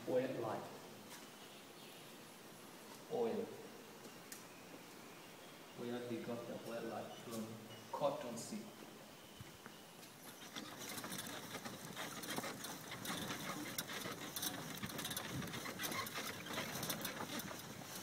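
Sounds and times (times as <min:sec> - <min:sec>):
horse-drawn cart rattling: 0:10.2 - 0:18.0.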